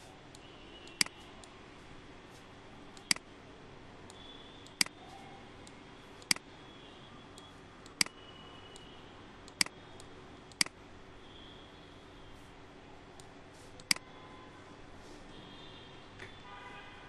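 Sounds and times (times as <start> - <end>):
faint steady hum: 0.0 - 17.0
computer mouse button clicking: 13.2 - 14.0.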